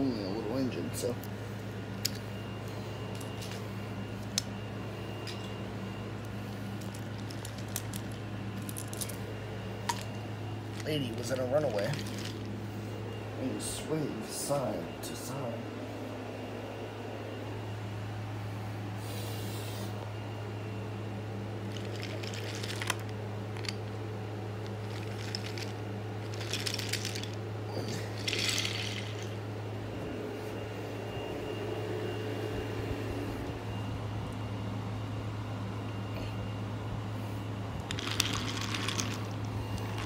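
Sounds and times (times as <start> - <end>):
steady low hum: 0.0 - 40.0
toys rustling on carpet: 9.9 - 12.6.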